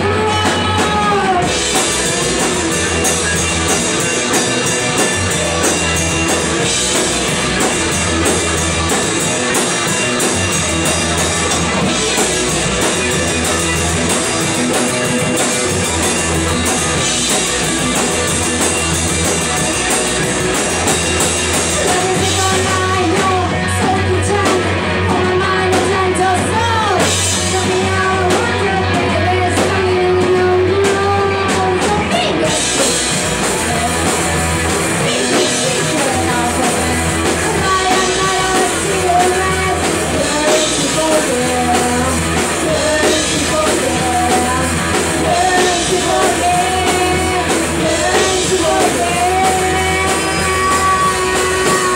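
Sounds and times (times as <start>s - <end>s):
person singing: 0.0s - 8.2s, 21.5s - 51.9s
drum kit: 0.0s - 51.9s
electric guitars: 0.0s - 51.9s.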